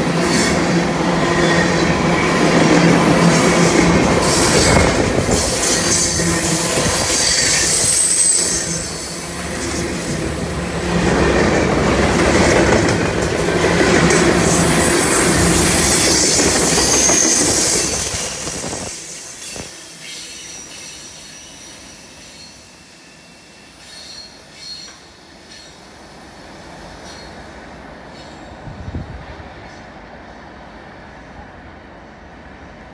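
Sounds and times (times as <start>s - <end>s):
train wheels rumbling on rail: 0.0s - 22.6s
high-pitched wheel squeal: 4.2s - 9.7s.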